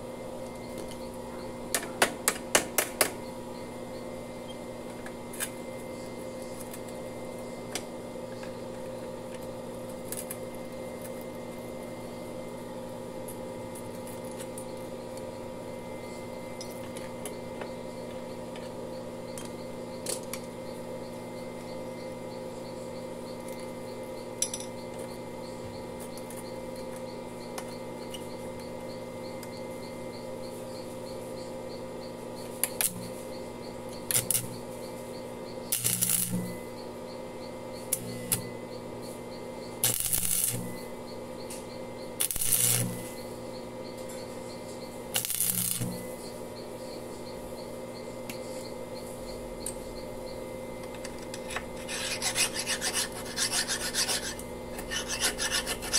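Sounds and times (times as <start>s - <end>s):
steady hum: 0.0s - 55.9s
welding arc crackling: 34.1s - 34.5s, 35.7s - 36.5s, 39.8s - 40.8s, 42.2s - 43.2s, 45.1s - 46.1s.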